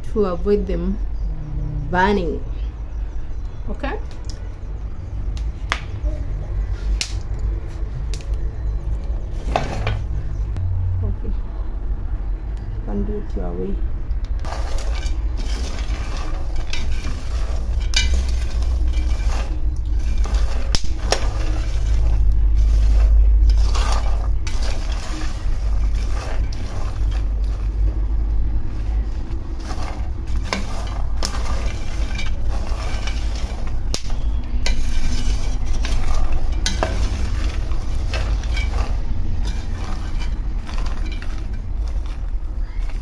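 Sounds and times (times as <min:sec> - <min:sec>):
steady low hum: 0:00.0 - 0:43.0
nuts rattling in a pan: 0:14.4 - 0:43.0.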